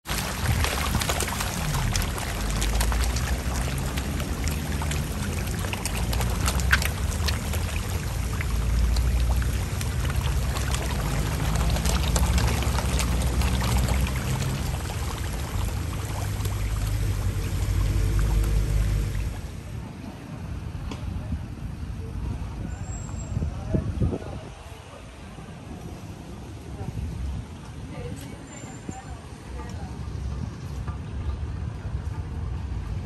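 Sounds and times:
fish splashing in water: 0.0s - 19.8s.

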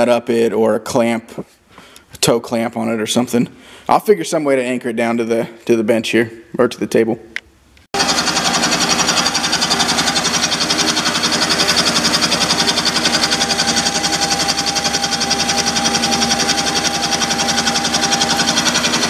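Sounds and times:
milling machine cutting metal: 8.0s - 19.0s
thin steady whine: 8.0s - 19.0s.

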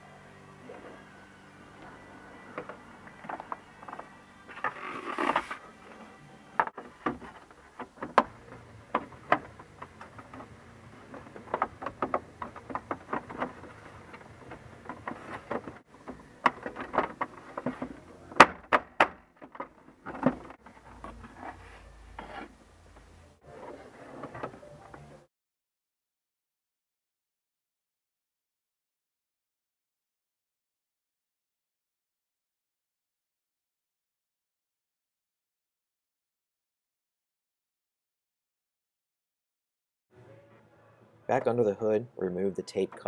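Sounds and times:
plastic scraping: 2.5s - 24.7s
hard plastic clicks and knocks: 11.1s - 20.6s.

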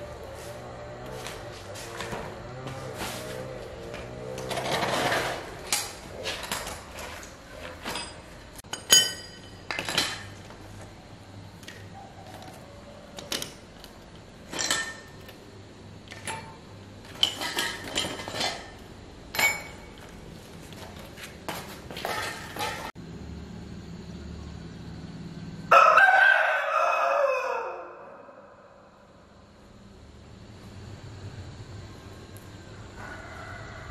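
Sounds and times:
metal tools clinking: 4.5s - 10.6s, 14.4s - 15.3s, 16.1s - 20.1s
rooster crowing: 25.6s - 29.0s, 32.9s - 33.9s.

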